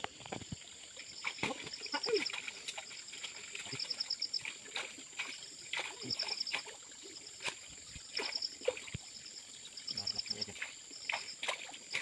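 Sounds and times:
water splashing: 0:00.0 - 0:12.0.

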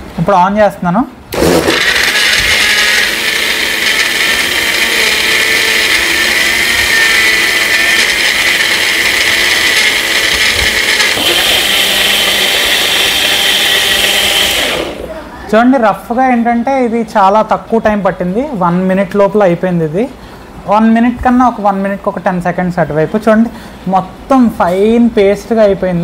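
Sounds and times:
blender running: 0:01.3 - 0:15.2.

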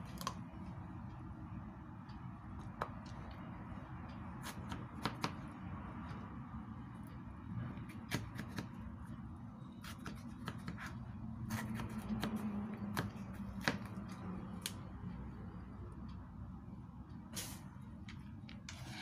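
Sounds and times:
steady low hum: 0:10.9 - 0:19.0.

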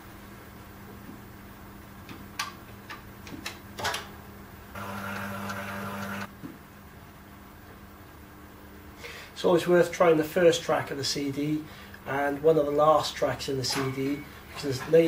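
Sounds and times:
low machine hum: 0:04.2 - 0:15.0
cd mechanism whirring: 0:04.8 - 0:06.3.

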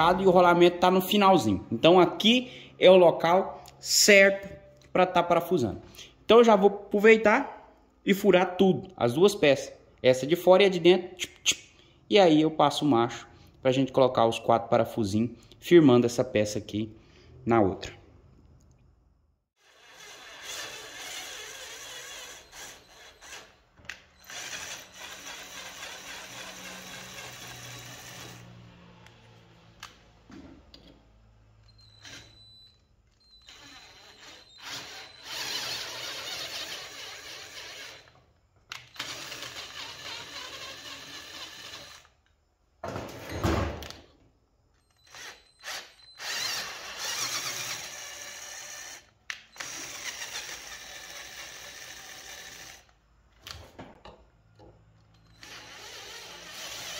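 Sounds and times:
cordless drill boring steel: 0:19.6 - 0:29.4, 0:31.6 - 0:42.2, 0:44.8 - 0:53.0, 0:55.1 - 0:56.9.

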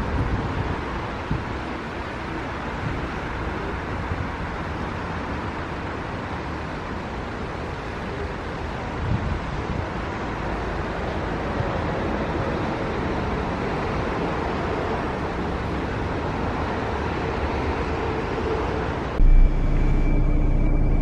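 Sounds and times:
bus interior hum: 0:00.0 - 0:21.0
wind: 0:00.0 - 0:21.0
train passing: 0:09.8 - 0:21.0
thin high whine: 0:19.2 - 0:21.0.

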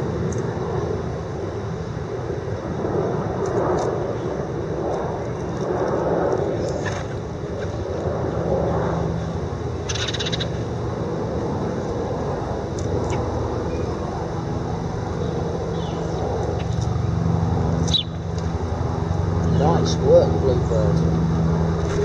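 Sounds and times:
city traffic rumble: 0:00.0 - 0:22.0
bird chirps: 0:09.9 - 0:10.5, 0:17.8 - 0:18.2.

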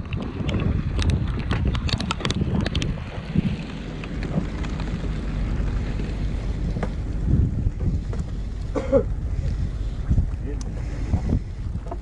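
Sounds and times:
low rumble: 0:00.0 - 0:12.0
wind buffeting microphone: 0:00.0 - 0:12.0.

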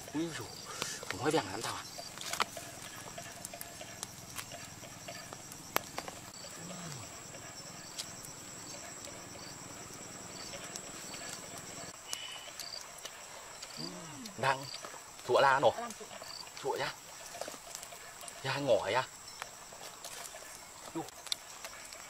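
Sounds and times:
high-pitched insect drone: 0:00.0 - 0:22.0
person humming low: 0:13.8 - 0:14.4.

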